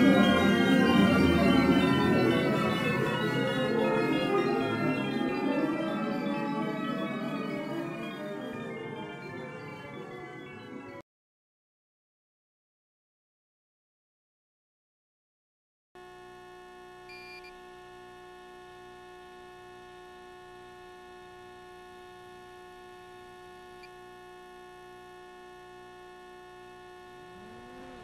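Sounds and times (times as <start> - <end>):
drone motors whining: 0.0 - 10.0
electrical hum and buzz: 16.0 - 28.0.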